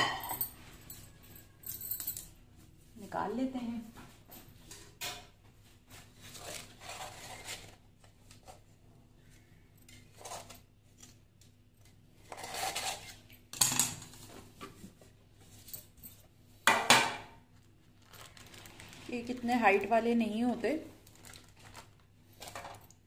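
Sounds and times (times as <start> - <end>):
knife scraping metal cake tin: 12.2 - 13.3.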